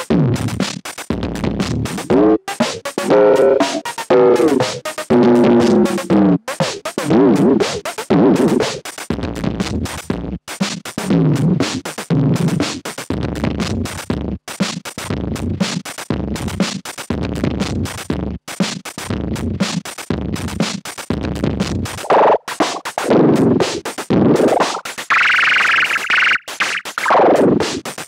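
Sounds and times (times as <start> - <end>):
drum machine loop: 0.0 - 8.9, 21.9 - 27.8.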